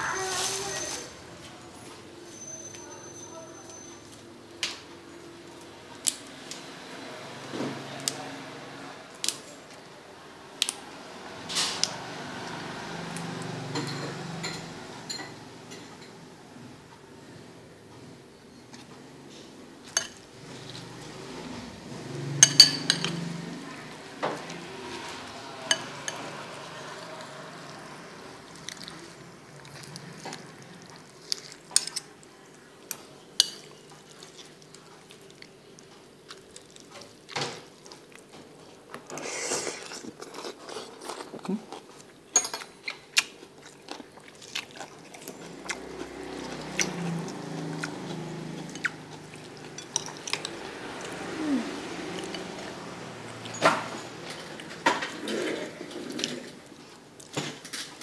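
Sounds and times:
fork clinking against bowl: 22.4s - 23.2s.

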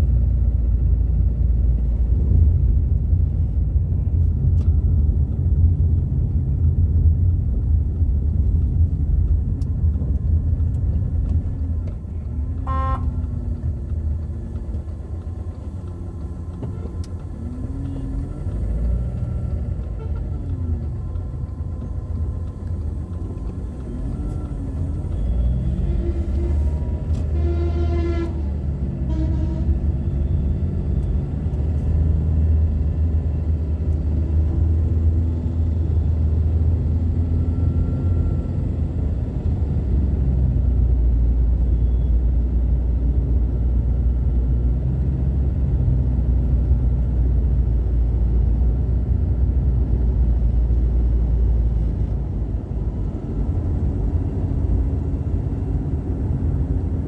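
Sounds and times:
car engine and tyre rumble: 0.0s - 57.0s
vehicle horn: 12.6s - 13.3s, 19.9s - 20.4s, 27.1s - 30.0s.

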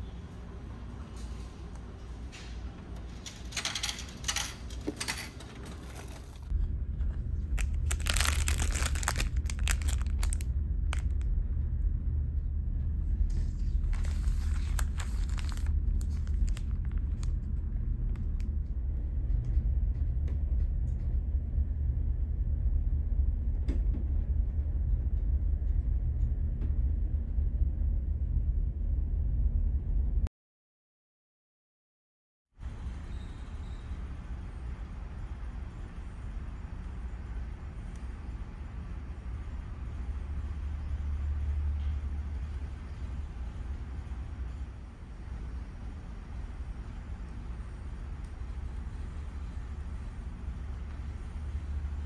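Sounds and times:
plastic bag crinkling: 7.4s - 11.2s, 13.8s - 17.4s.

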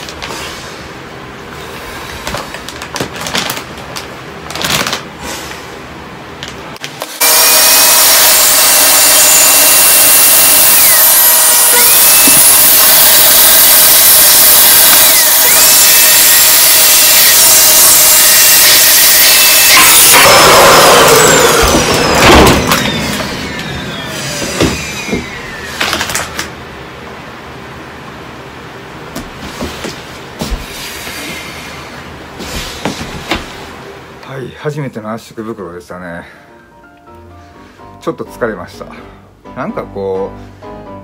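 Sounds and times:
vacuum cleaner running: 6.8s - 28.2s.

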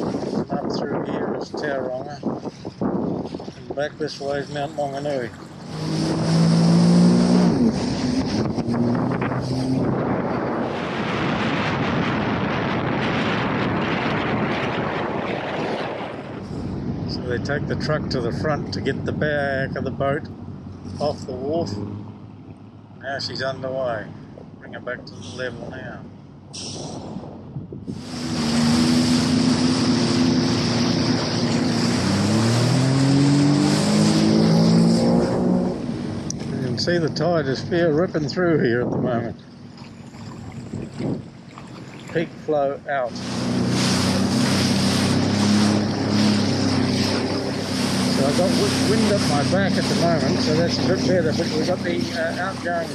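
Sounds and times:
wind on microphone: 0.0s - 19.6s, 25.2s - 52.9s
jet ski engine hum: 0.0s - 26.4s, 27.9s - 52.9s
water spray: 5.6s - 8.2s, 28.0s - 35.2s, 43.1s - 52.9s.

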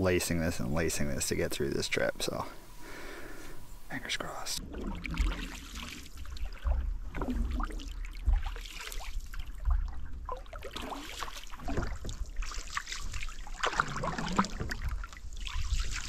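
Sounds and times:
paddle strokes splashing water: 4.6s - 16.0s.

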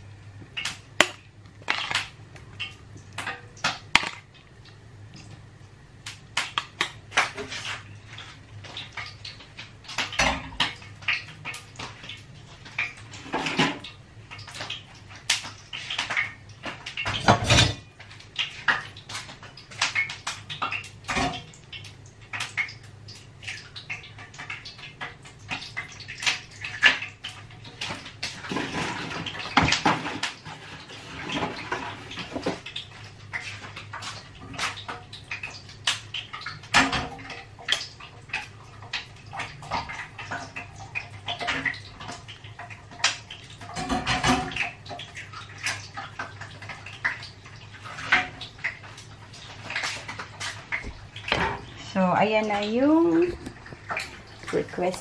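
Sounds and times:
plates pans and cutlery clattering: 17.1s - 17.8s, 27.9s - 32.6s.

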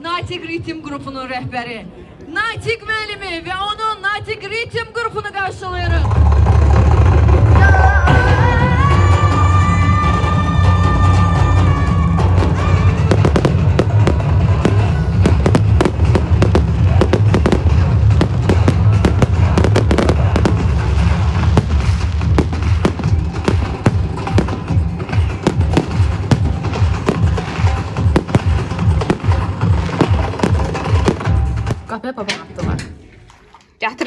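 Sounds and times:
loud music with heavy bass: 6.0s - 31.9s
fireworks bangs and crackling: 12.2s - 31.9s.

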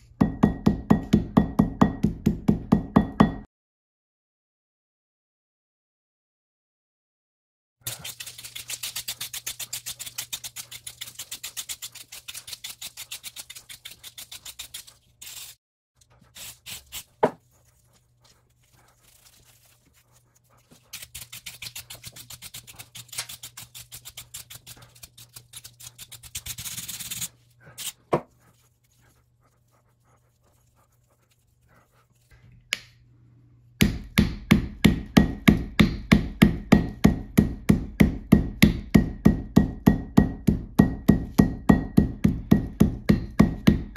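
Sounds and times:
wire brush scrubbing bristles: 7.8s - 32.4s
hammer striking steel anvil: 33.8s - 43.8s.

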